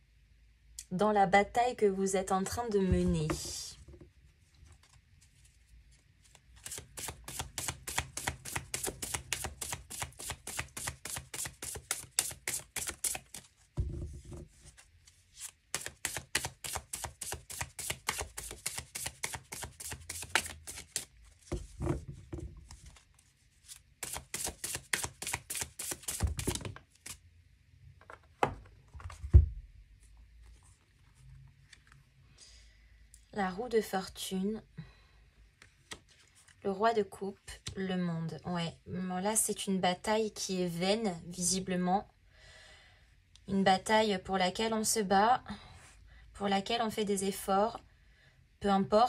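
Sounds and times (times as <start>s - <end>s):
cards being shuffled: 6.2s - 27.2s, 35.6s - 36.6s
deck knocking on table: 13.8s - 14.4s.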